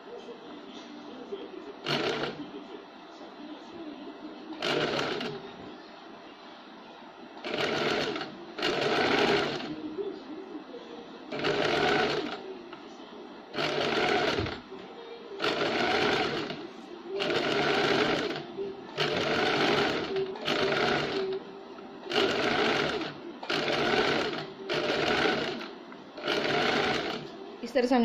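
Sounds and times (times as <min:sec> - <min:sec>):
sewing machine stitching: 0:01.8 - 0:02.4, 0:04.6 - 0:05.4, 0:07.4 - 0:09.7, 0:11.3 - 0:12.4, 0:13.5 - 0:14.6, 0:15.4 - 0:16.6, 0:17.2 - 0:18.4, 0:19.0 - 0:21.4, 0:22.1 - 0:27.3.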